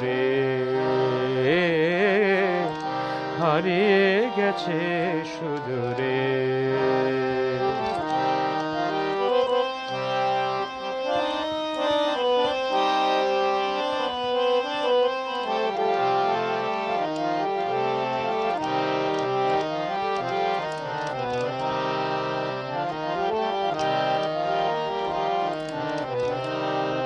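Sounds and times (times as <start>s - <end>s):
reed-like keyboard melody: 0.0s - 27.0s.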